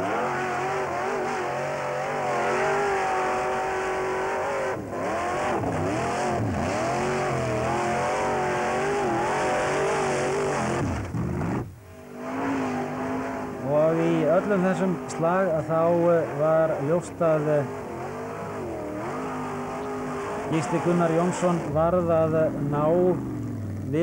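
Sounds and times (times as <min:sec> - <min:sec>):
buggy engine revving hard: 0:00.0 - 0:24.0.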